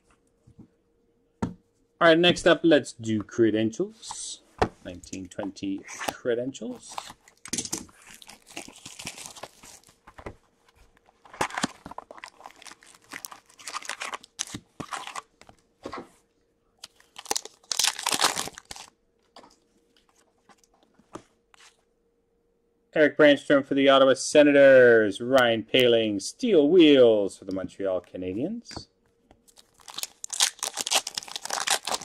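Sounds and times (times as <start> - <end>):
wrappers crinkling: 6.8 - 10.0, 10.8 - 15.4, 16.8 - 18.9, 29.5 - 32.0
foil packs tearing open: 6.9 - 10.0, 11.3 - 15.3, 16.8 - 18.9, 29.5 - 32.0.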